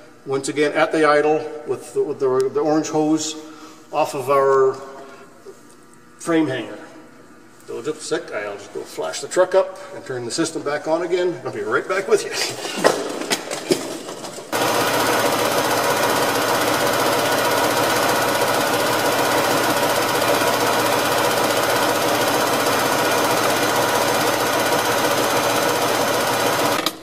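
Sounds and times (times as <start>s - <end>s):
air compressor running: 2.8s - 9.0s, 12.2s - 27.0s.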